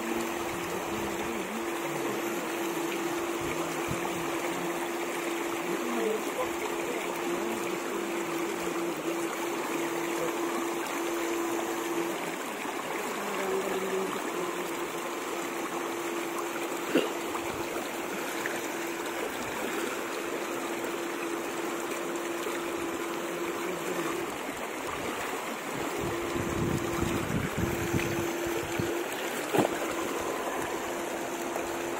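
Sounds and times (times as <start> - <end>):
steady electrical hum: 0.0 - 31.9
river water rushing over rocks: 16.0 - 31.9.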